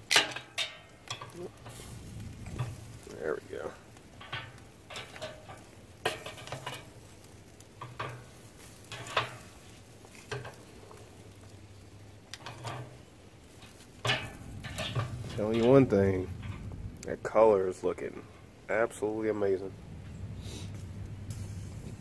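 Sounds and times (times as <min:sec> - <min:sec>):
metal tongs clinking on grill grate: 0:00.0 - 0:03.1, 0:03.7 - 0:16.8.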